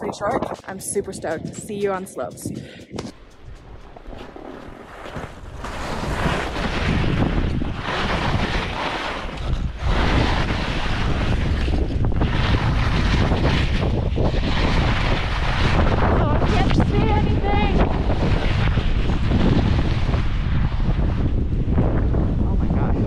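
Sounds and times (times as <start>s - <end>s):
wind rushing over microphone: 0.0s - 23.0s
skis hissing through snow: 4.1s - 17.2s.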